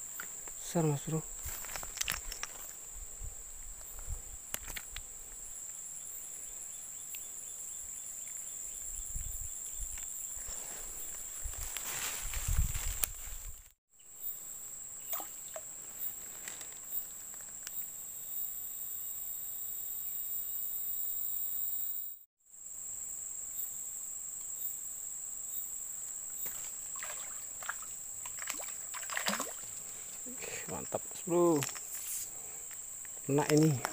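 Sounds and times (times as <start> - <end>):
insects droning: 0.0 - 33.9
light water splashes: 15.0 - 15.7, 26.4 - 30.1.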